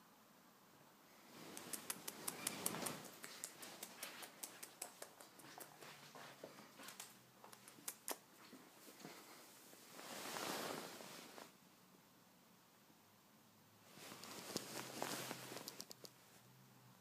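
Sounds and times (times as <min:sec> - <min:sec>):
soft rustle: 0:01.1 - 0:11.7, 0:13.8 - 0:16.6
light sharp clicks and ticks: 0:01.5 - 0:08.3, 0:14.1 - 0:16.2.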